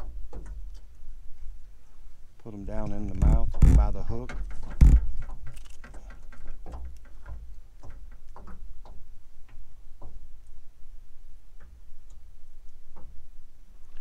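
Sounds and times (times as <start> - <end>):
light clicks and taps: 2.4 - 10.6.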